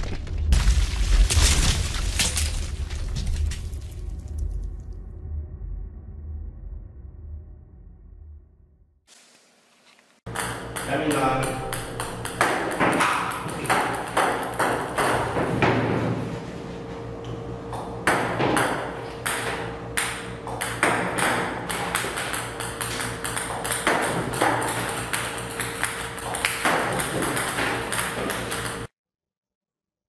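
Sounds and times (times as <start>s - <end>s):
table tennis balls clicking on table: 10.3s - 15.4s, 20.0s - 28.9s
steady hum: 10.3s - 28.9s.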